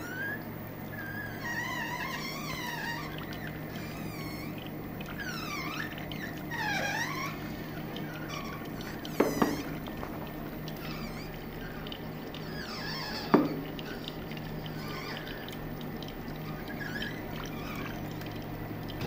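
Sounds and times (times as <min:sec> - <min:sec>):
oil press motor humming: 0:00.0 - 0:19.0.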